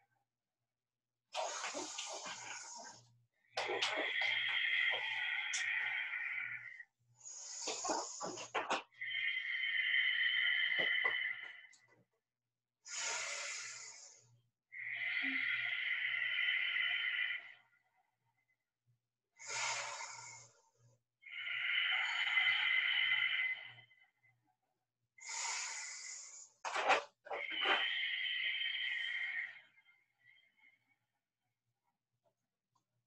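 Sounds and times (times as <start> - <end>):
person breathing deeply: 1.4 - 11.7, 12.9 - 17.6, 19.4 - 20.6, 21.2 - 24.1, 25.2 - 30.9.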